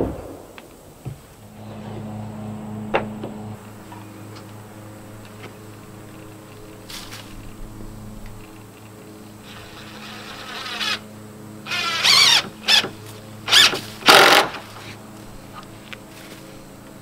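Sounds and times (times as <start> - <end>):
impact driver driving screw: 13.5 - 14.6.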